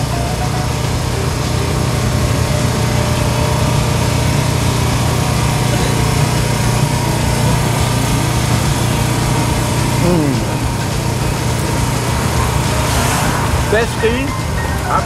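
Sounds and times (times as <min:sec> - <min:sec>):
small engine running: 0:00.0 - 0:15.0.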